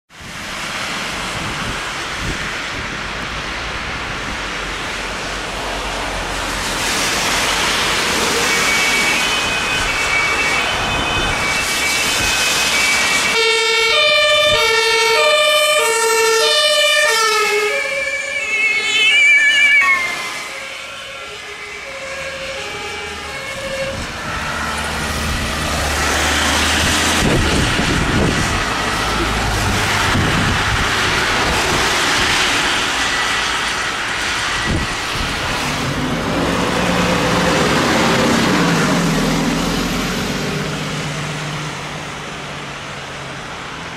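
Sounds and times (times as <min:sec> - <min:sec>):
tyres on wet road: 0:00.1 - 0:43.9
two-tone emergency sirens: 0:07.5 - 0:42.0.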